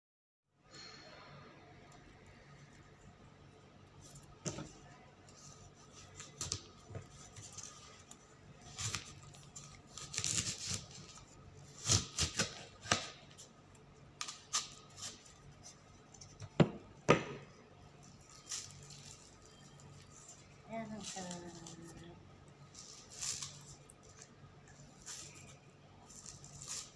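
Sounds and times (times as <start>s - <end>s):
knife slicing fruit skin: 8.6s - 13.3s.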